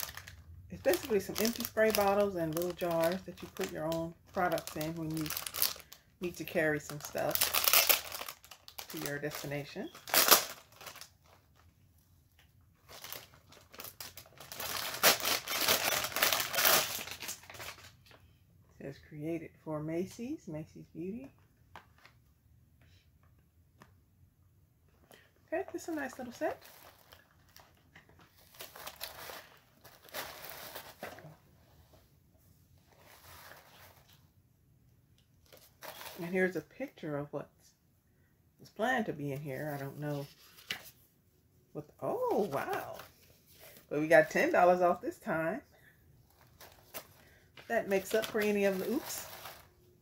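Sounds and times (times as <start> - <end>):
packaging crinkling: 0.0 - 11.7, 12.8 - 18.2, 26.1 - 31.4, 46.3 - 49.9.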